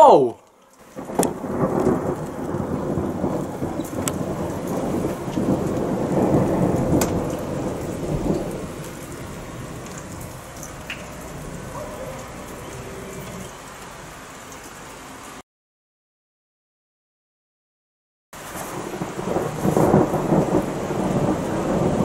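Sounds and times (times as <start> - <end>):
heavy rain hissing: 0.0 - 15.4, 18.4 - 22.0
thunder rumbling: 0.8 - 14.2, 18.4 - 22.0.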